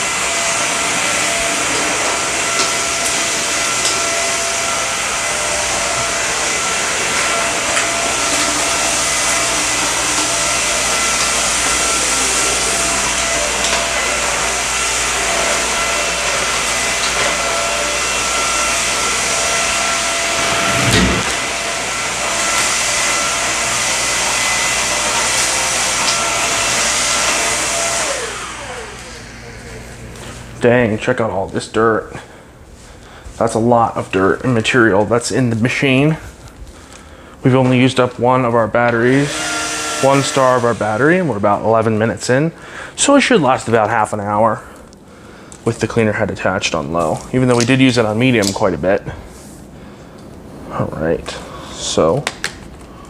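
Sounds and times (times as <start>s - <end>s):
vacuum cleaner running: 0.0s - 30.7s, 37.4s - 44.1s.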